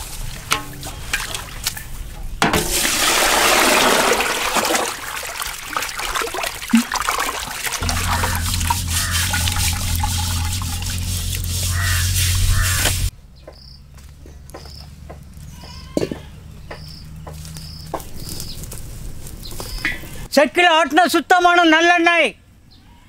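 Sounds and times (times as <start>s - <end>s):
water dripping and trickling: 0.0s - 13.1s
water splashing in a metal pot: 0.2s - 13.1s
metal plate knocking against pot: 0.5s - 0.9s
steady low hum: 7.7s - 13.1s.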